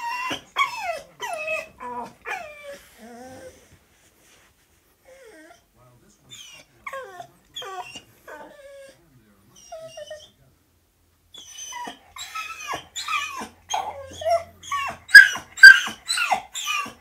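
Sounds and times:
dog yelping: 0:00.0 - 0:03.4, 0:06.4 - 0:09.0, 0:11.4 - 0:17.0
dog whining: 0:00.0 - 0:03.7, 0:05.0 - 0:05.7, 0:06.3 - 0:09.0, 0:09.6 - 0:10.4, 0:11.3 - 0:17.0.

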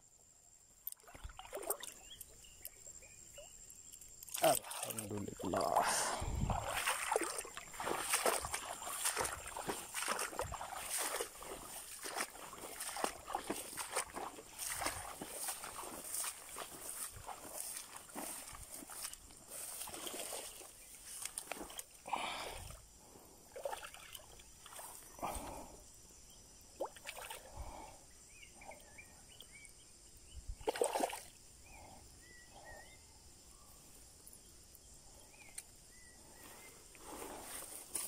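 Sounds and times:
water splashing: 0:00.9 - 0:02.3, 0:04.2 - 0:22.6, 0:30.6 - 0:31.3.

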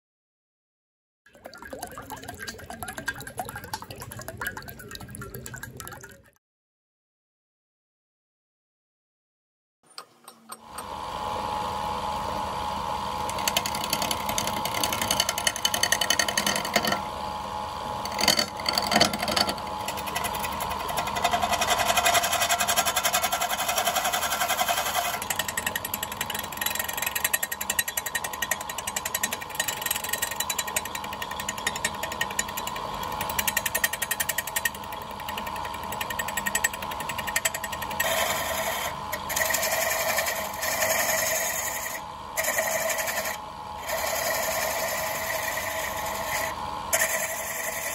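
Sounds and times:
wood lathe motor hum: 0:10.6 - 0:47.9
turning tool chattering on wood: 0:13.3 - 0:17.0, 0:18.0 - 0:38.6.

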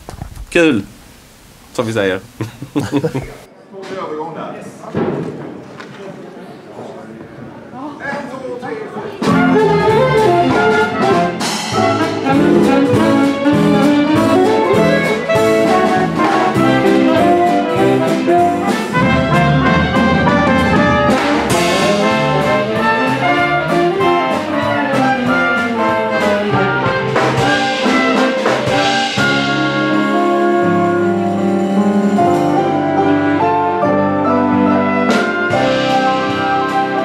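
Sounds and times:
big band playing swing: 0:09.1 - 0:37.0.

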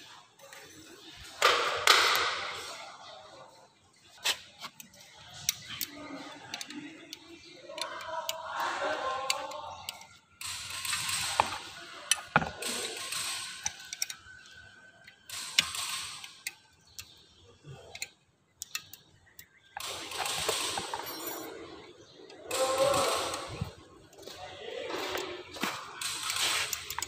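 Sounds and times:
wrench clicking and scraping metal: 0:04.2 - 0:17.2, 0:17.9 - 0:24.2, 0:24.9 - 0:27.0.

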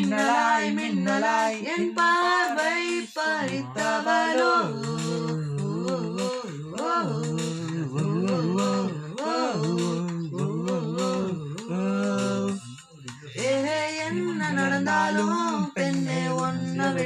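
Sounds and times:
man humming a melody: 0:03.4 - 0:17.0.

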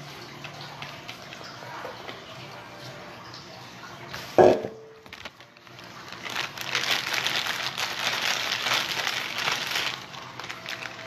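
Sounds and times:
plastic bag crinkling: 0:04.9 - 0:11.0.

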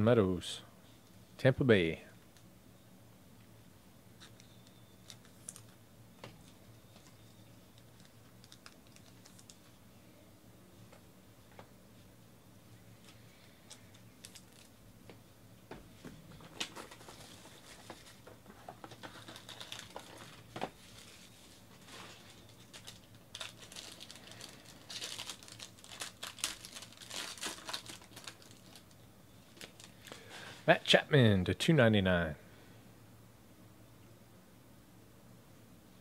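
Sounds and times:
foil wrapper crinkling and tearing: 0:04.2 - 0:05.8, 0:06.9 - 0:09.7, 0:13.7 - 0:14.8, 0:16.5 - 0:30.3
clicks and rustles of box: 0:16.4 - 0:21.2.

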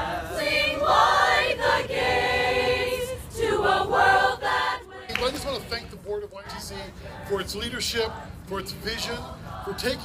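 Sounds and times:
choir singing: 0:00.0 - 0:05.1.

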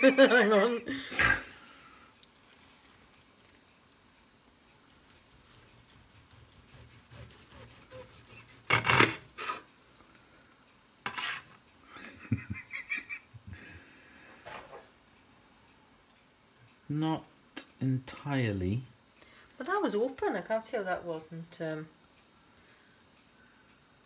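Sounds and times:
knife sawing through meat: 0:05.3 - 0:09.6
knife and fork scraping metal tray: 0:06.6 - 0:09.7, 0:11.0 - 0:11.5.

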